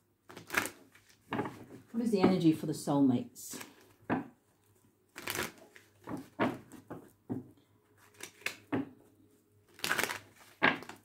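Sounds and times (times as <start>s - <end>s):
cards being shuffled: 0.3s - 1.9s, 3.5s - 4.2s, 5.1s - 7.2s, 8.0s - 8.8s, 9.7s - 11.0s.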